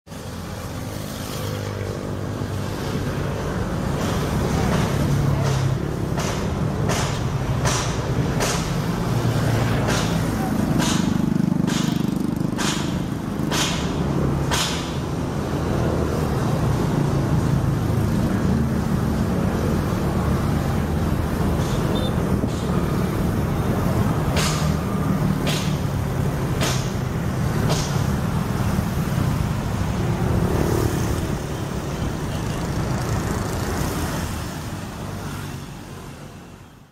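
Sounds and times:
road traffic rumble: 0.0 - 36.9
sharp clacks: 4.0 - 8.9, 9.7 - 15.0, 24.2 - 27.0, 27.6 - 28.2.

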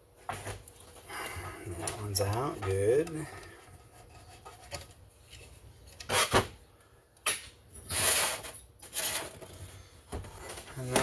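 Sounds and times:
scraping rub on workbench: 7.9 - 9.3.

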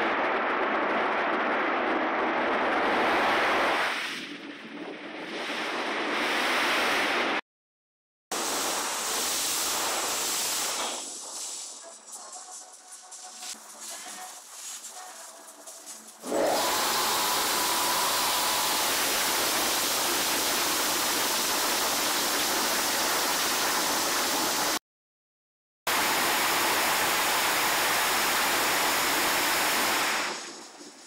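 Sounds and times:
car wash jets rushing: 8.4 - 11.5, 16.2 - 24.8, 25.9 - 30.6.

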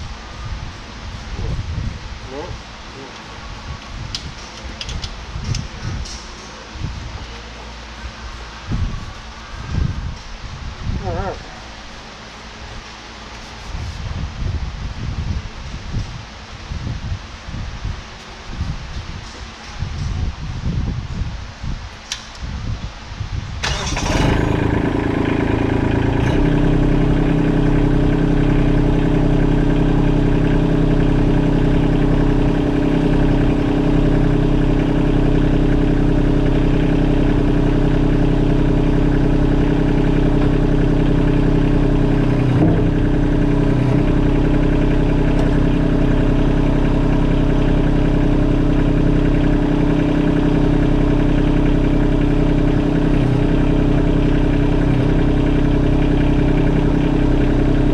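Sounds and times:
tractor diesel engine idling: 23.6 - 57.9.

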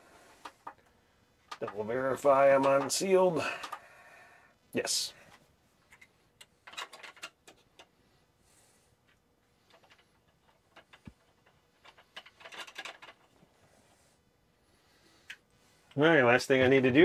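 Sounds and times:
light clicks of plastic handling: 2.5 - 3.9.

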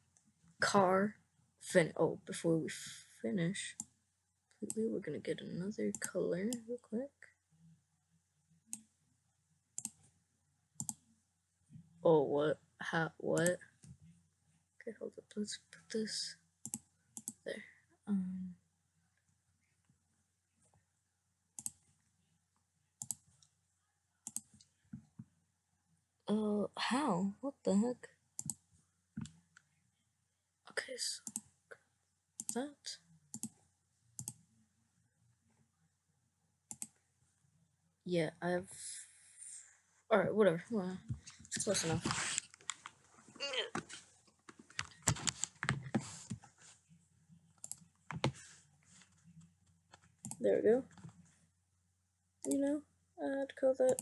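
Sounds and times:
computer mouse clicks: 9.8 - 10.0, 10.8 - 11.0, 16.6 - 17.4, 21.6 - 21.8, 23.0 - 23.5, 24.2 - 24.7, 28.4 - 28.6, 31.2 - 31.5, 33.3 - 33.6, 34.2 - 34.4, 36.7 - 37.0, 47.6 - 48.4
computer mouse and keyboard clicks: 44.5 - 46.4.

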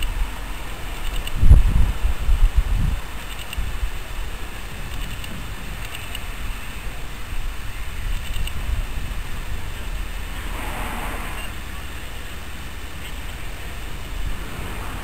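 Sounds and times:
diesel locomotive rumbling: 0.0 - 15.0
brief rush of noise: 10.3 - 11.8.

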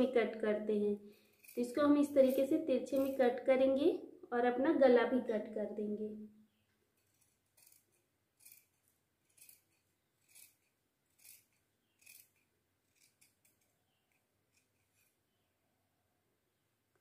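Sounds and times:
scissors snipping fabric: 11.2 - 13.6.

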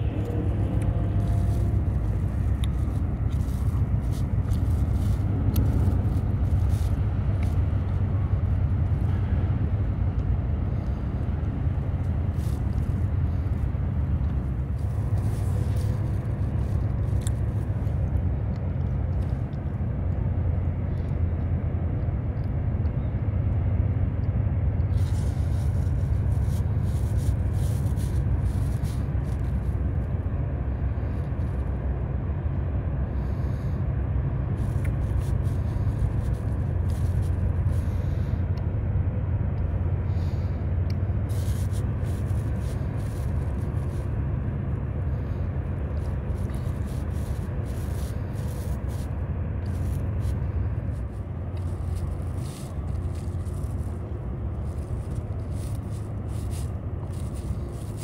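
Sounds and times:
diesel engine low rumble: 0.0 - 58.0.

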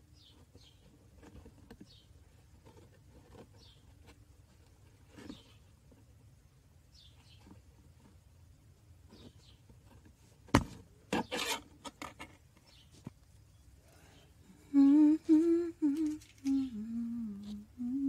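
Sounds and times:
person humming: 14.5 - 18.0.

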